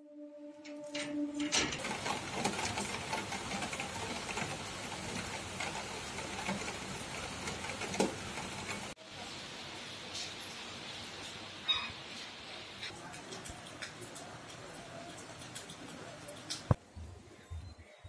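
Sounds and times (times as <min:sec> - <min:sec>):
steady rain falling: 0:01.8 - 0:17.5.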